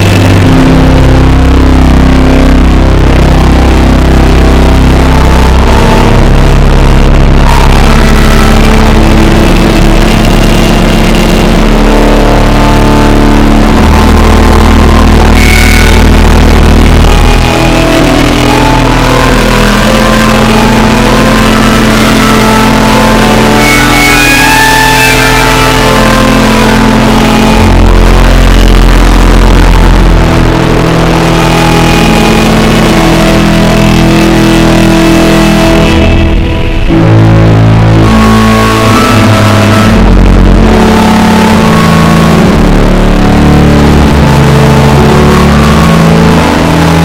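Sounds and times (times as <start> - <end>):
organ chords: 0.0 - 47.0.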